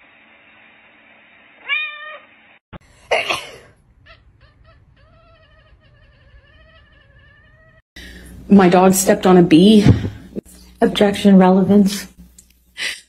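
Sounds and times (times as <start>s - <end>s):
cat meowing: 1.6s - 2.3s, 4.0s - 7.8s.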